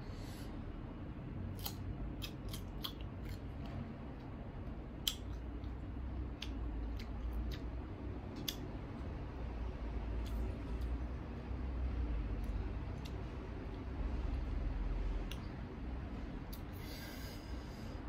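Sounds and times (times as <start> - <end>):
person crunching unripe mango: 1.5 - 3.8.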